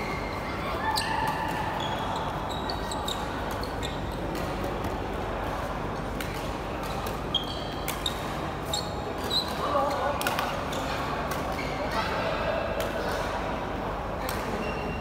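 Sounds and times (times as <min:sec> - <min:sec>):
shoes squeaking on court: 0:00.0 - 0:04.5, 0:06.9 - 0:10.1.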